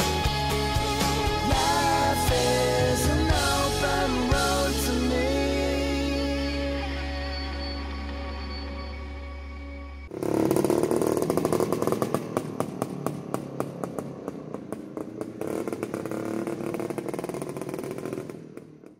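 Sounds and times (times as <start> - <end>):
background music: 0.0 - 10.1
motorcycle engine crackling: 10.1 - 18.9.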